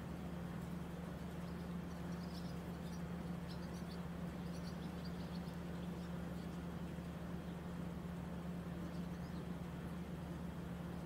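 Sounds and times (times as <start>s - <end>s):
birds chirping: 0.2s - 11.0s.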